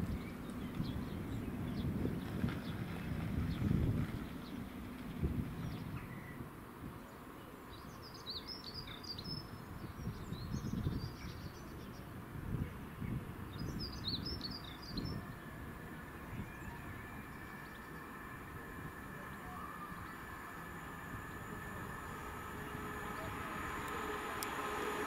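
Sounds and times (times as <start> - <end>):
low background rumble: 0.0 - 7.2, 9.2 - 25.0
small birds twittering: 5.6 - 25.0.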